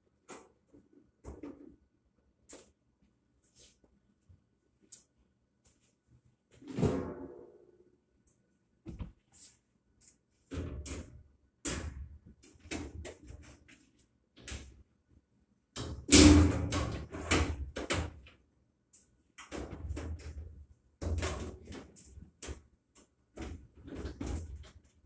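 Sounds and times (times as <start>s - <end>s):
metal cabinet knocks and rattles: 10.5s - 13.4s.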